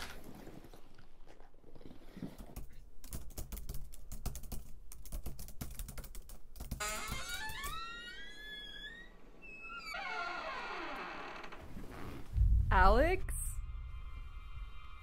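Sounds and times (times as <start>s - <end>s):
fast typing on computer keyboard: 2.6s - 6.8s.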